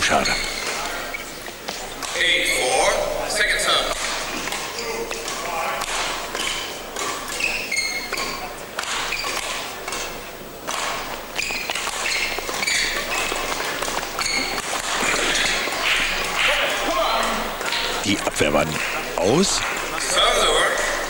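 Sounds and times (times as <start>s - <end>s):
shoes squeaking on court floor: 0.0s - 21.0s
racket striking shuttlecock: 3.8s - 16.8s
crowd murmur: 12.4s - 21.0s.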